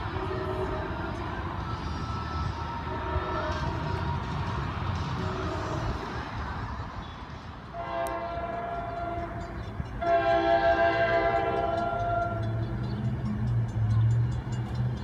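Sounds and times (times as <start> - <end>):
train air horn blasts: 0.0 - 1.1, 2.8 - 3.9, 5.2 - 6.0, 7.7 - 12.7.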